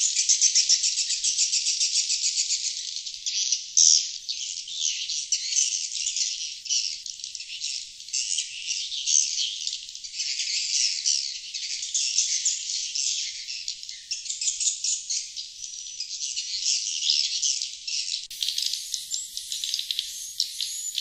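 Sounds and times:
swiftlets twittering chatter: 18.3 - 21.0.

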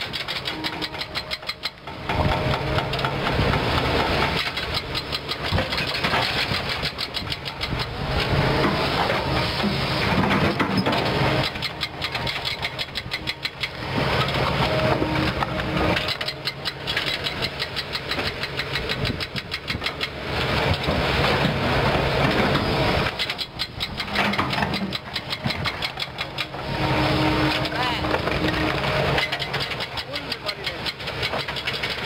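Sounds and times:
excavator diesel engine working: 0.0 - 32.0.

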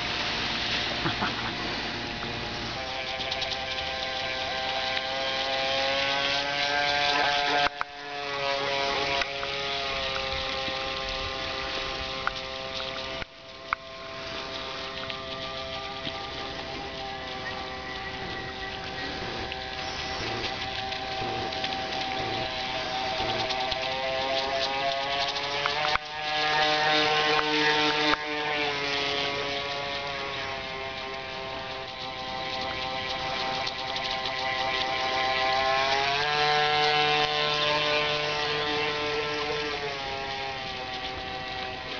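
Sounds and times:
model boat electric motor whining: 0.0 - 41.9.

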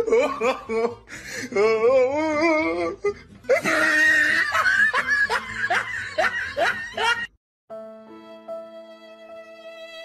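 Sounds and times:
person laughing: 0.0 - 7.3.

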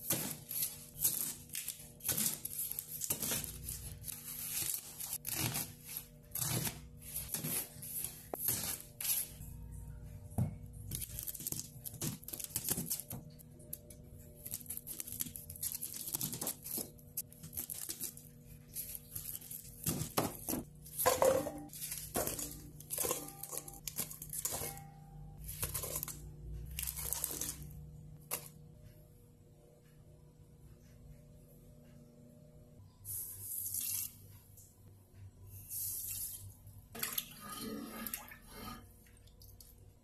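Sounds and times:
garlic skins crackling and tearing: 0.0 - 9.4, 10.8 - 13.4, 14.4 - 20.5, 25.4 - 27.7.

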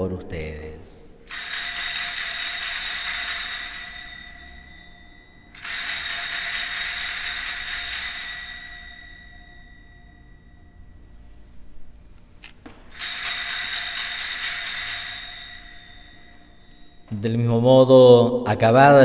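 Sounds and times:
bells ringing: 1.3 - 11.6, 12.9 - 17.7.

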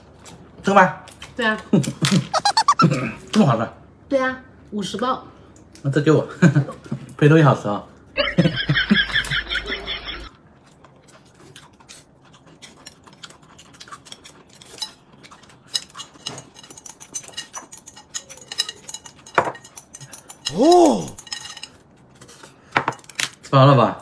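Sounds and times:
rapid warble sound effect: 2.4 - 2.8.

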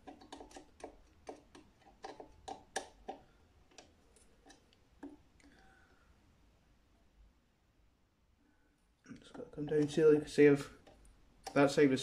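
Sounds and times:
screwdriver turning small screw: 0.0 - 5.2.

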